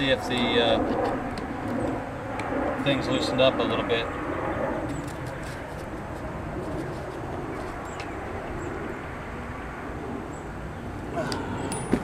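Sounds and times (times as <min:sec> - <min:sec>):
outdoor background noise: 0:00.0 - 0:12.0
bird cooing: 0:11.2 - 0:12.0.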